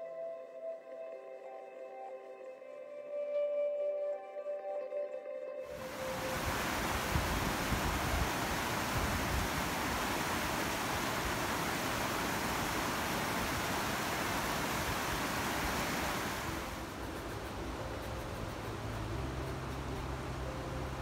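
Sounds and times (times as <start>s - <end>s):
river rapids rushing over rock: 5.7s - 21.0s.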